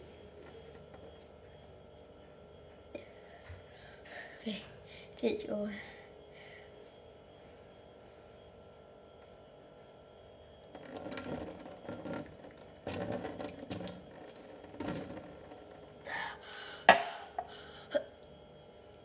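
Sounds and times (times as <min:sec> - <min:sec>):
water splashing into metal sink: 0:10.7 - 0:15.7
person gasping: 0:16.1 - 0:18.0.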